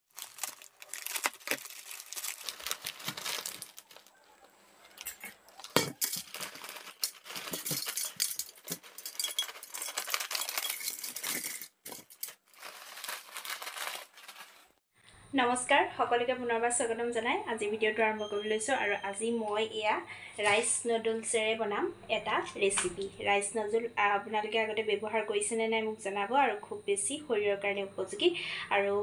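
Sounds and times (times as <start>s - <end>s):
small crackles and clicks: 0.1s - 11.3s
plastic bag crinkling: 0.1s - 14.8s.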